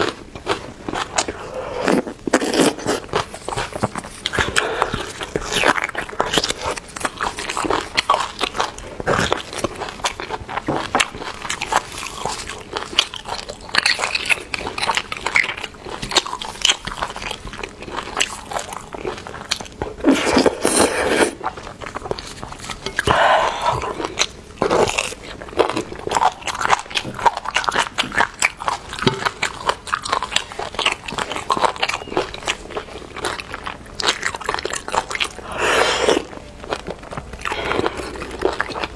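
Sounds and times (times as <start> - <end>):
person chewing wet bites: 0.0 - 38.9.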